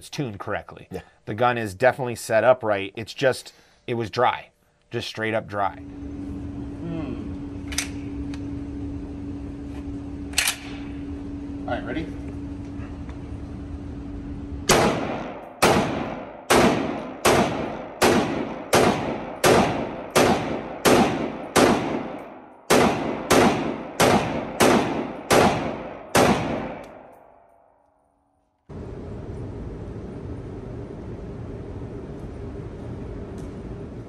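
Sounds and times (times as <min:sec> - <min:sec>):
rifle shots echoing indoors: 0:14.6 - 0:27.9.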